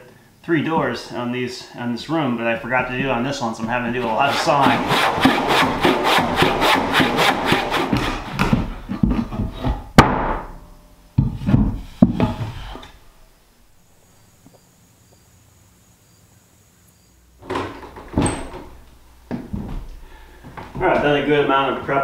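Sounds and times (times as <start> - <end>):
handsaw cutting wood: 3.8 - 9.5
hammer knocks: 4.6 - 12.9.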